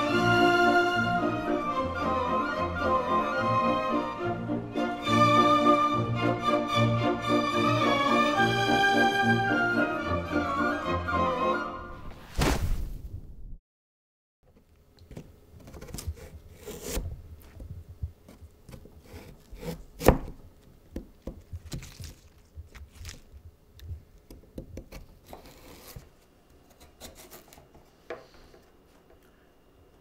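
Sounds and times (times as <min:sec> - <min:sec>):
knife chopping on cutting board: 0:18.7 - 0:20.4.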